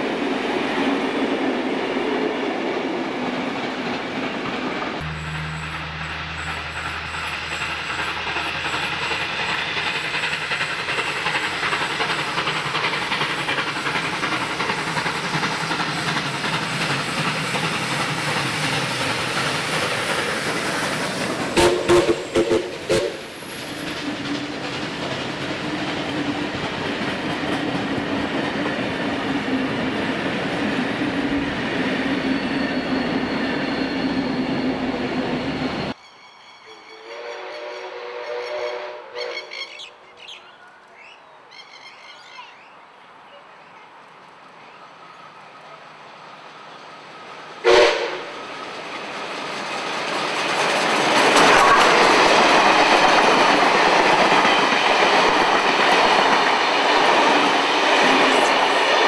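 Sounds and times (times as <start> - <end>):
train rumbling on rails: 0.0 - 59.0
steam whistle blasts: 5.0 - 9.4, 21.6 - 23.3, 36.7 - 39.7, 47.6 - 48.3, 51.4 - 52.2
steam hissing: 5.0 - 28.6.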